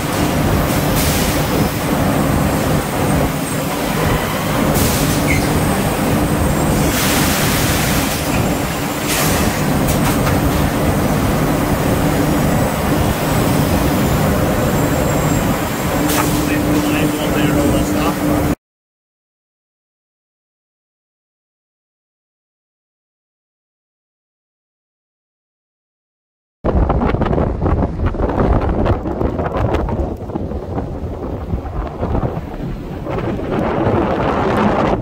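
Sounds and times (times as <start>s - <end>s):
wrapping machine droning: 0.0s - 18.6s.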